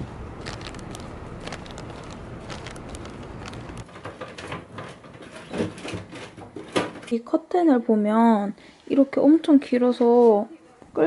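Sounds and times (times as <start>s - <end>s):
street ambience: 0.0s - 4.2s
shopping bag rustling: 0.0s - 4.6s
footsteps: 0.0s - 5.0s
groceries being handled: 0.0s - 7.0s.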